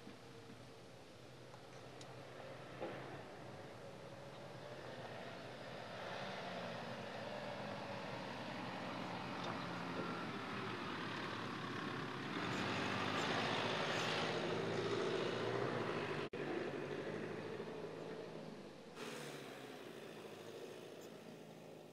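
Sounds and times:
diesel engine running: 0.0s - 21.9s.

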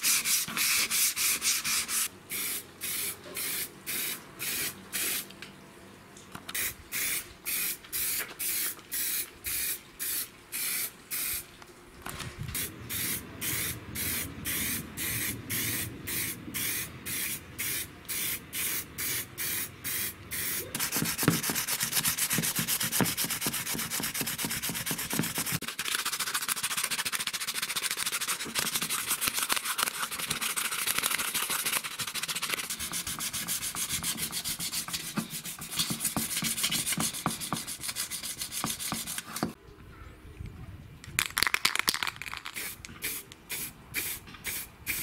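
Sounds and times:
sandpaper rubbing: 0.0s - 2.1s, 20.5s - 39.6s
aerosol spray can bursts: 1.4s - 5.3s, 6.6s - 11.4s, 12.6s - 25.6s, 42.5s - 45.0s.

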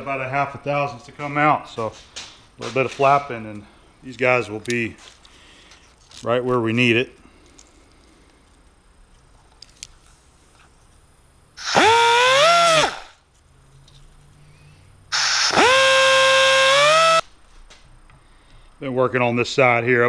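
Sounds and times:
power tool whine: 11.6s - 13.2s, 15.1s - 17.3s.

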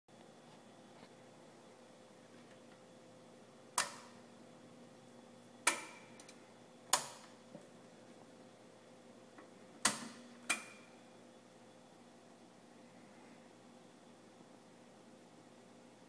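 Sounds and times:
faint steady hum: 0.1s - 16.0s
toggle switches clicking: 3.8s - 4.2s, 5.6s - 7.4s, 9.8s - 10.9s.

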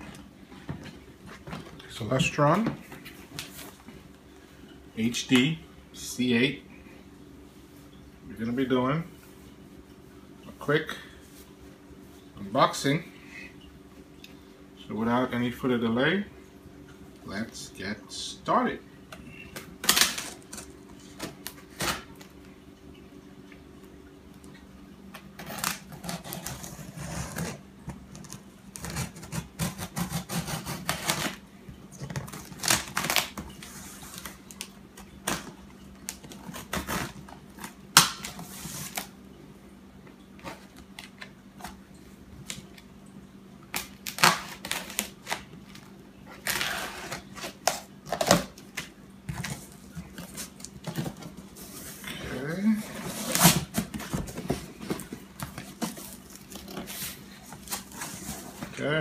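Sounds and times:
knife scraping packing tape: 25.4s - 27.6s, 28.2s - 31.4s, 32.3s - 33.4s, 43.8s - 45.5s, 46.4s - 48.4s
tape peeling: 32.1s - 39.1s, 43.7s - 51.8s
cardboard knocking and rustling: 53.0s - 58.8s.

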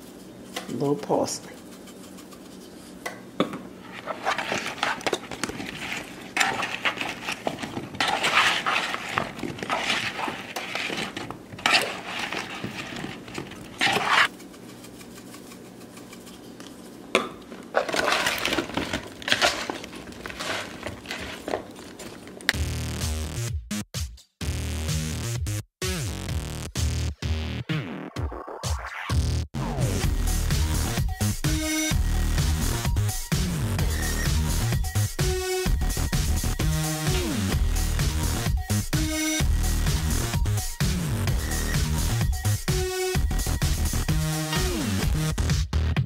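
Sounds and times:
metal spoon scraping in bowl: 3.9s - 16.9s.

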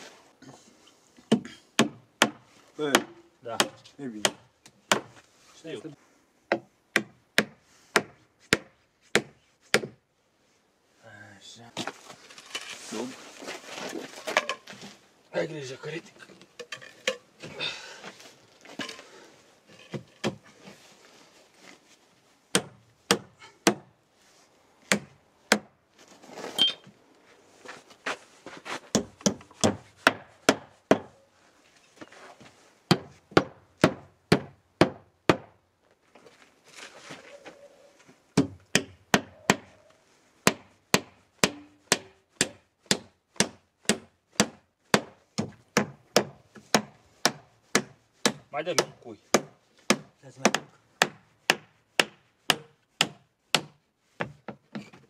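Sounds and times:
hammer striking nails: 28.9s - 31.1s, 38.4s - 39.7s, 40.4s - 54.4s.

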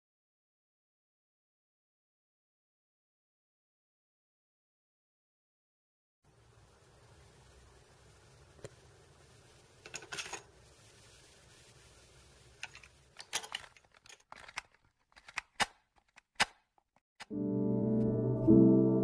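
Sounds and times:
cassette tape plastic clicks: 12.6s - 16.7s.

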